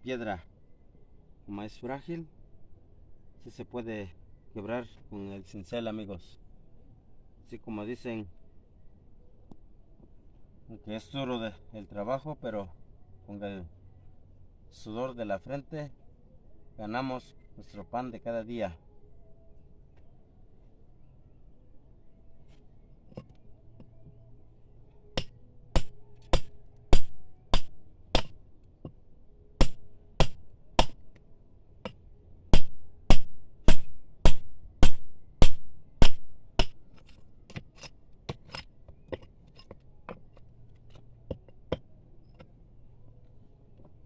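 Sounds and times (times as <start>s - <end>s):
hammer striking steel chisel: 25.2s - 28.4s, 29.6s - 31.0s, 31.8s - 42.5s.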